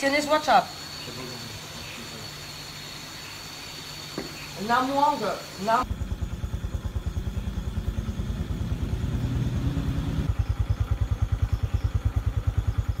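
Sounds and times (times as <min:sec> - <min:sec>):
low hum: 0:05.8 - 0:13.0
scooter engine idling: 0:05.8 - 0:13.0.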